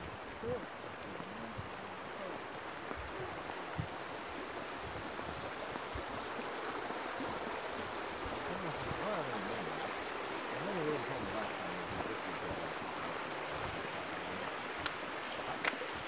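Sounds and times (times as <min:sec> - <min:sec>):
creek water flowing: 0:00.0 - 0:16.0
faint voices: 0:07.3 - 0:16.0.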